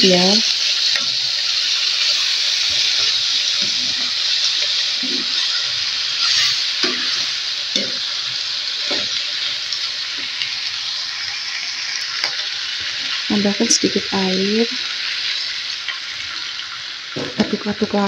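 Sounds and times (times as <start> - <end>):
food sizzling in hot oil: 0.0 - 18.0
spatula stirring food: 0.6 - 10.4.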